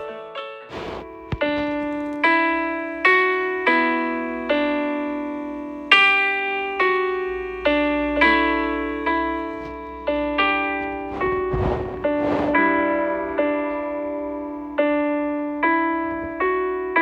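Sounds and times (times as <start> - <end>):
slow piano melody: 0.0 - 17.0.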